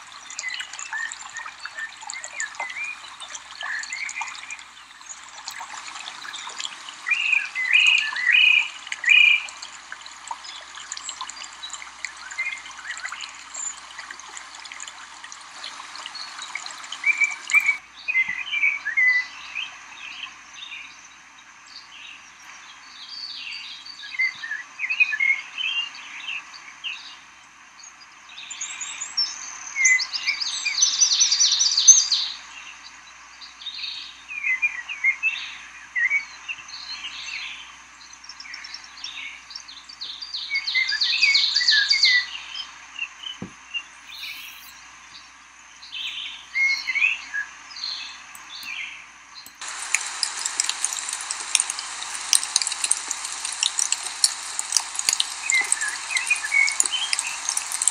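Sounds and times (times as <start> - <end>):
steady hiss: 0.0 - 34.4, 36.5 - 57.9
songbird singing with trills: 6.2 - 9.6, 33.4 - 57.9.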